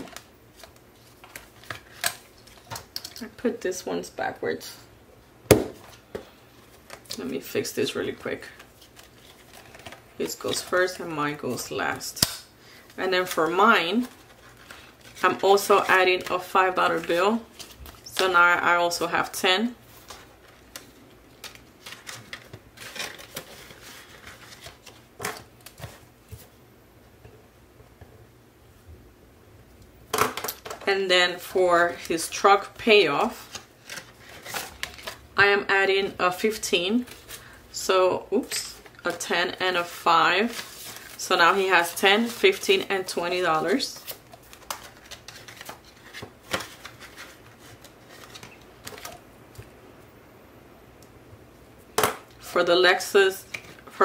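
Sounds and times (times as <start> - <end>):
paper bills rustling: 19.9 - 26.0, 39.1 - 49.1.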